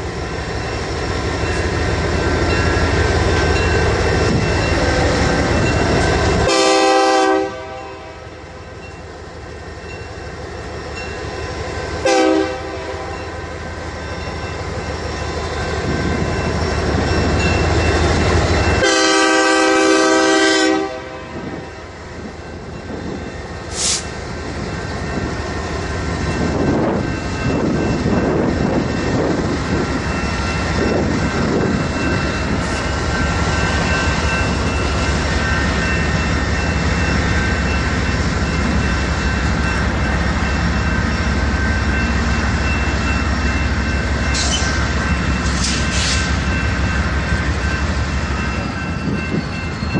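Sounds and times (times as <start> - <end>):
diesel locomotives rumbling: 0.0 - 49.9
locomotive air horn: 6.4 - 8.4, 12.0 - 13.2, 18.8 - 21.6
high squeal: 44.3 - 46.4.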